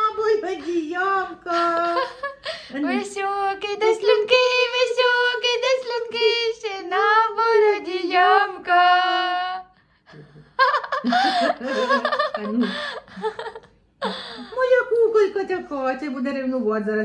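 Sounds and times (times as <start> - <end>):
woman singing wordlessly: 0.0 - 9.7.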